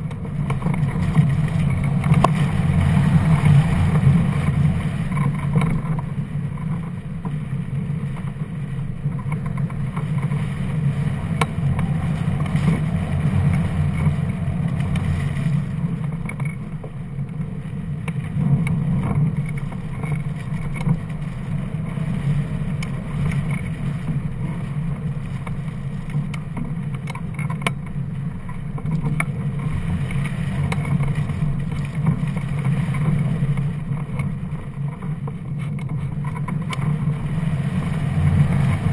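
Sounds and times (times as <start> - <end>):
faint ticks: 18.0 - 37.2.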